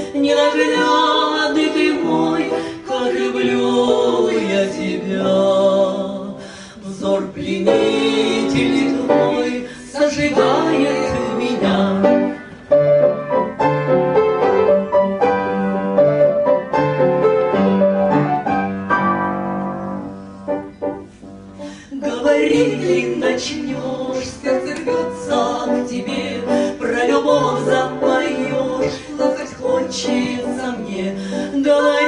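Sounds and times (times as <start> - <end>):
woman singing: 0.0 - 12.4, 21.8 - 32.0
slow song accompaniment: 0.0 - 32.0.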